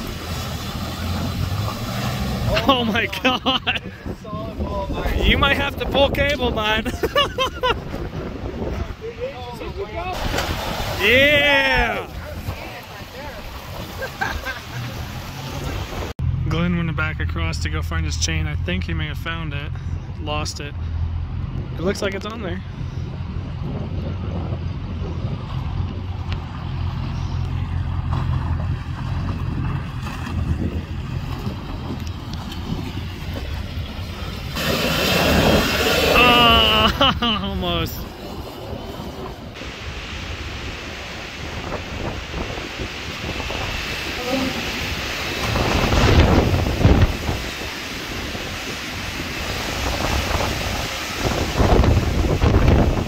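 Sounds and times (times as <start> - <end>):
wind buffeting microphone: 3.6 - 16.1, 21.0 - 36.6, 37.6 - 53.0
engine running steadily: 11.9 - 53.0.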